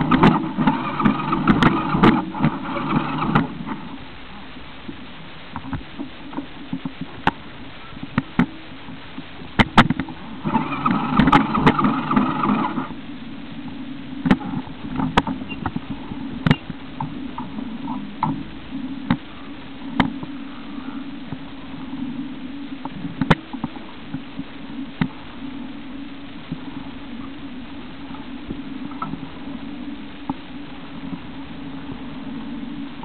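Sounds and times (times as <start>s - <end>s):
vehicle engine hum: 0.0s - 4.8s
high-pitched engine whine: 10.2s - 13.3s.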